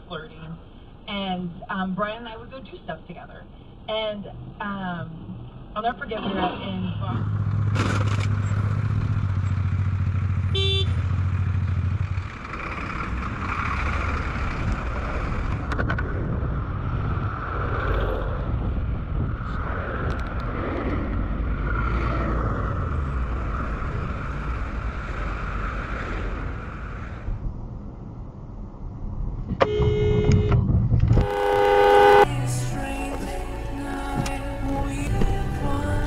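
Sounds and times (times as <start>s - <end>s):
wind and road noise: 0.0s - 36.0s
motorcycle engine: 7.1s - 15.7s, 31.1s - 36.0s
short beep: 29.6s - 30.6s.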